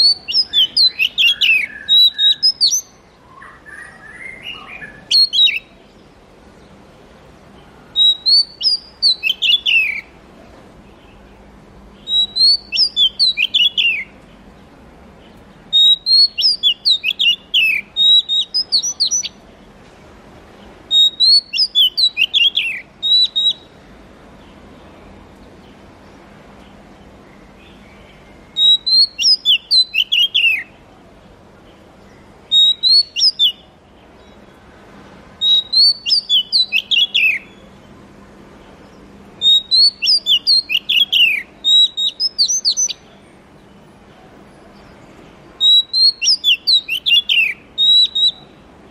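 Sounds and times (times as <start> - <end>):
bird singing whistled notes: 0.0 - 6.1, 7.8 - 10.1, 12.0 - 14.3, 15.7 - 19.4, 20.9 - 23.8, 27.6 - 30.8, 32.0 - 34.5, 35.4 - 37.8, 39.4 - 43.2, 45.6 - 48.6.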